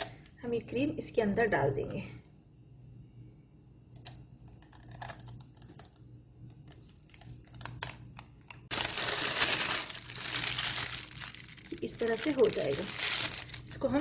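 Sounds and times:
plastic bag crinkling: 0:07.1 - 0:14.0.

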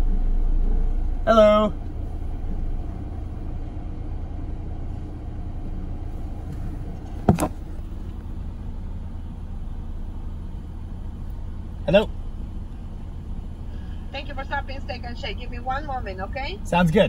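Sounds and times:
car engine idling: 0:00.0 - 0:17.0
phone handling knock: 0:07.2 - 0:07.7.

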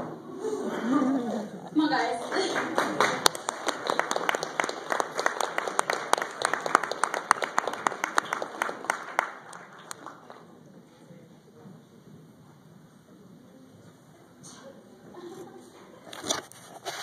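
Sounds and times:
audience applauding: 0:01.9 - 0:10.5.

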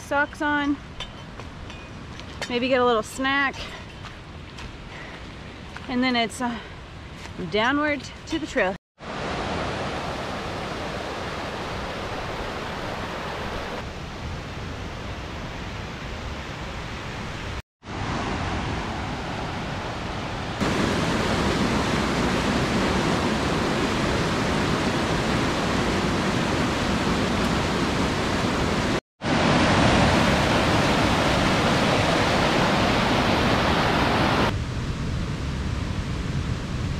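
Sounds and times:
creek rushing over rocks: 0:20.6 - 0:34.5.

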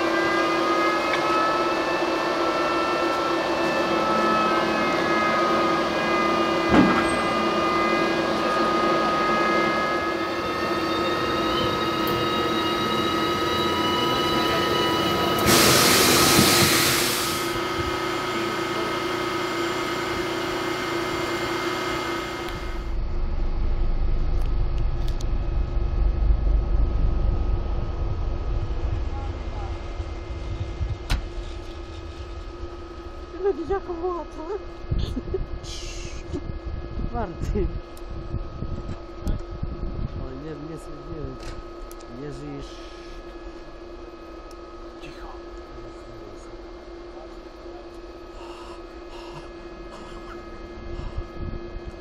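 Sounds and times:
locomotive electrical whine: 0:00.0 - 0:52.0
loud burst of hissing: 0:15.4 - 0:17.6
low rumble: 0:22.5 - 0:44.7.

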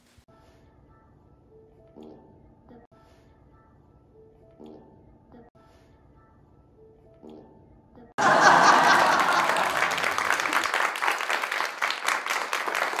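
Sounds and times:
crowd applause: 0:08.2 - 0:13.0.

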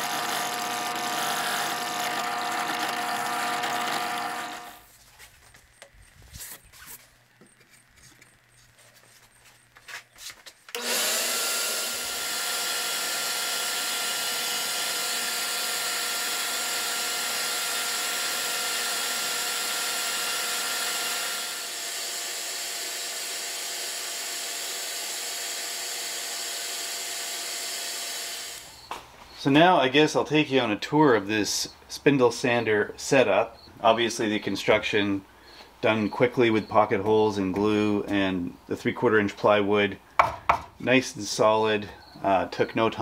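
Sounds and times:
spindle sander running: 0:00.0 - 0:04.9, 0:10.7 - 0:28.9.

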